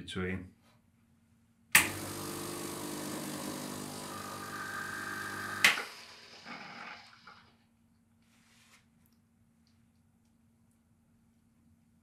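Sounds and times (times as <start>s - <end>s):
vibratory pump buzzing: 1.8s - 7.2s.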